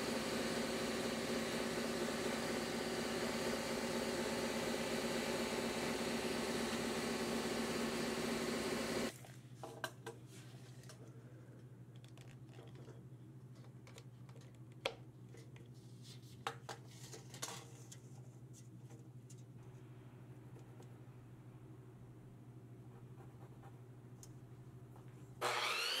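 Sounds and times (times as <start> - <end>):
power tool running: 0.0 - 9.1, 25.4 - 26.0.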